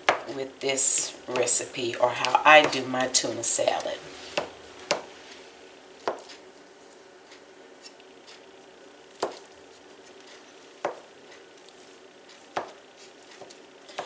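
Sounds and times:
scraper knocking on cutting board: 0:09.2 - 0:09.4.

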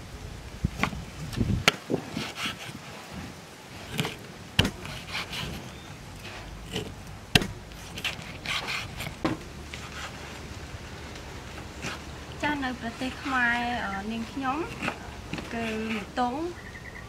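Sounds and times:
knife chopping on wooden board: 0:03.9 - 0:05.5, 0:06.7 - 0:07.6.

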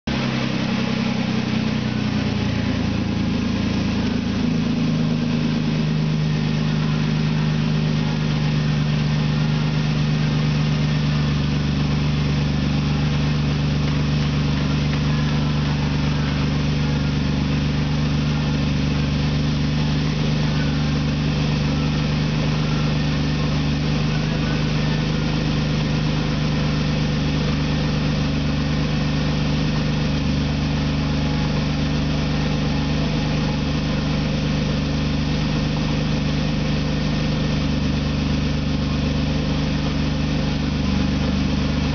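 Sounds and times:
car engine idling: 0:00.0 - 0:41.9.

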